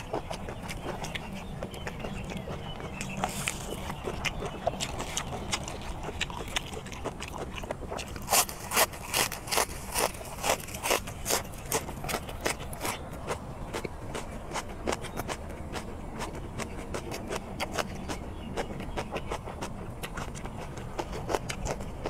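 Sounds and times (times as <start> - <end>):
chewing crunchy green onions: 0.0 - 22.0.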